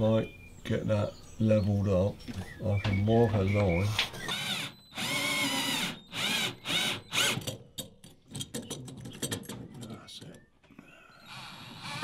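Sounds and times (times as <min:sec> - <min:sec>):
cordless drill driving screw into wood: 0:03.9 - 0:07.6, 0:11.2 - 0:12.0.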